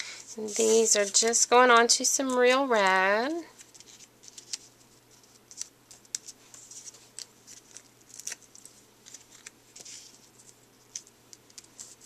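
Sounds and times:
cardstock rustling: 0.2 - 1.6.

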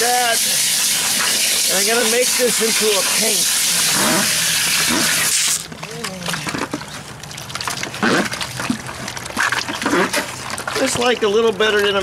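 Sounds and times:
water hissing from hose nozzle: 0.0 - 5.6
cement sloshing in bucket: 0.0 - 12.0.

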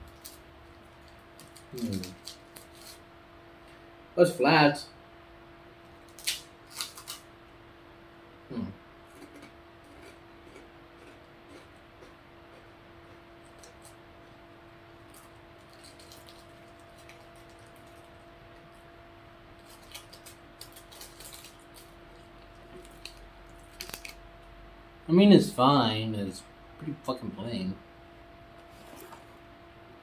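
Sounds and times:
cookie crackling while eaten: 0.0 - 3.0, 5.9 - 7.3, 8.5 - 18.9, 19.5 - 24.3
low electrical hum: 0.0 - 30.0.

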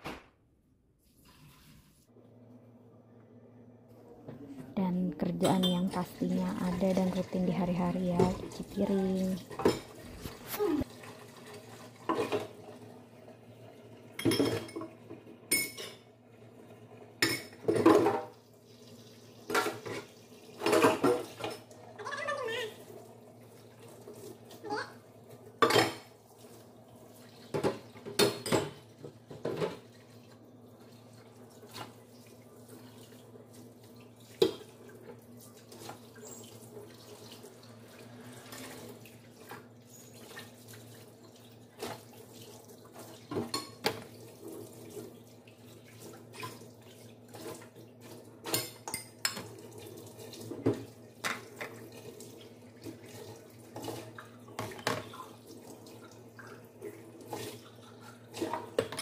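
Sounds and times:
tap water running: 1.0 - 2.2, 4.3 - 59.0
dishes clinking in a sink: 5.3 - 6.8, 8.1 - 10.7, 12.0 - 12.6, 14.1 - 16.1, 17.2 - 18.4, 19.4 - 21.7, 25.6 - 26.2, 27.4 - 30.2, 34.3 - 36.6, 42.9 - 44.2, 48.4 - 52.1, 52.8 - 55.4, 57.3 - 59.0.

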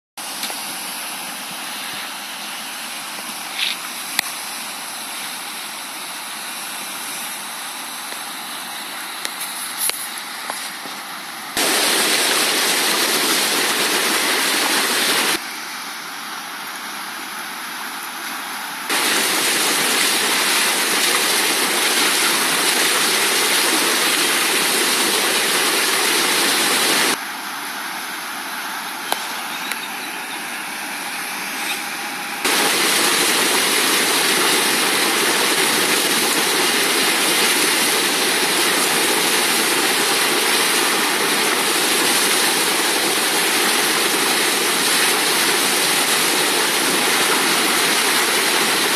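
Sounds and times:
river rushing through whitewater: 11.6 - 15.4, 18.9 - 27.2, 32.4 - 48.9.

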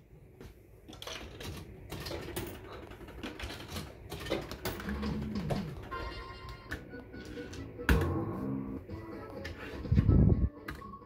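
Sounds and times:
fruit machine clicking and clattering: 0.9 - 6.2.

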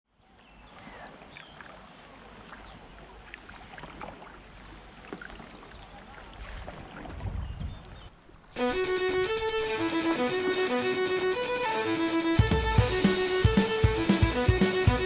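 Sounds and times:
paddle splashing water: 0.3 - 10.8.

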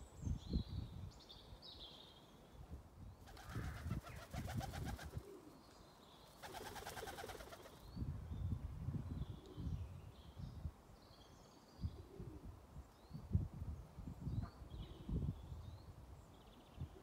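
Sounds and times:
songbird singing: 0.0 - 17.0
dove wings flapping: 3.3 - 5.3, 6.4 - 7.8.

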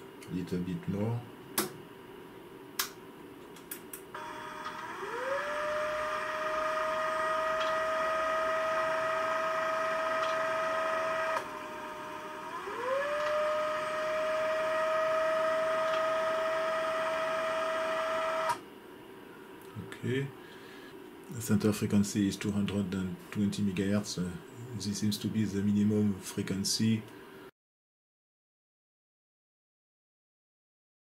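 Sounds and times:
stepper motor clicks: 3.6 - 11.8, 12.4 - 14.2, 14.8 - 18.6
motor whine climbing in pitch: 4.2 - 18.6.

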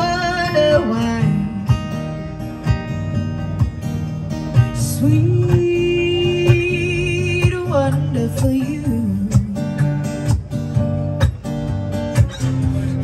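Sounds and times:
woman singing: 0.0 - 1.8, 4.8 - 10.0
strummed acoustic guitars: 0.0 - 13.0.

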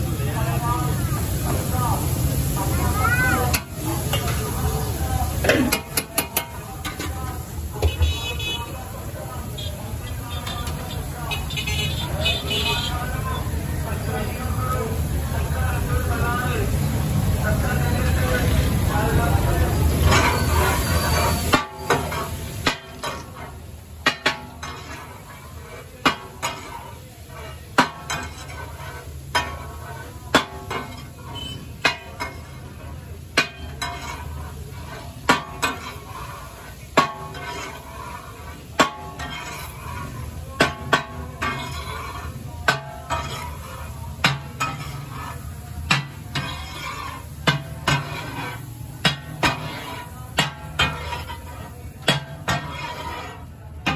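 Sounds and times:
metal spatulas clanking on iron pan: 3.2 - 8.5, 9.5 - 11.5, 18.4 - 53.9.

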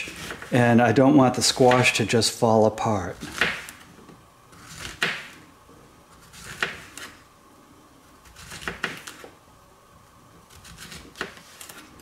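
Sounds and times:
knife slicing squash: 0.0 - 0.6, 3.1 - 3.9, 4.5 - 5.4, 6.1 - 7.2, 8.2 - 9.3, 10.5 - 12.0.

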